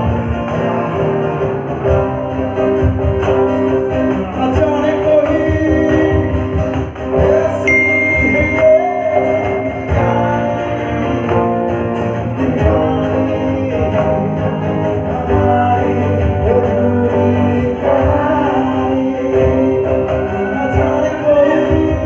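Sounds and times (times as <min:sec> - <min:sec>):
cajon beat: 0:00.0 - 0:22.0
guitars strumming: 0:00.0 - 0:22.0
man singing into a microphone: 0:00.0 - 0:22.0.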